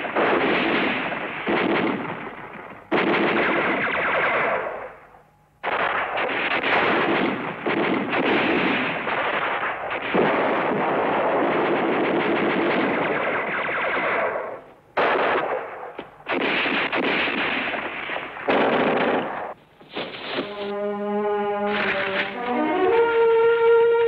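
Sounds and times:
machine-gun and rifle fire: 0.0s - 5.0s, 5.6s - 19.6s.

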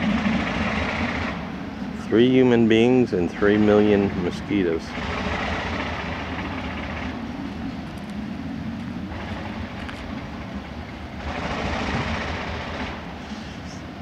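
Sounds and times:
diesel locomotive engine humming: 0.0s - 14.0s.

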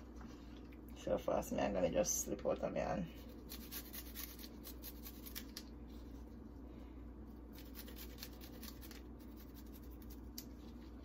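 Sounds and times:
garlic scraping on a grater: 3.4s - 5.4s.

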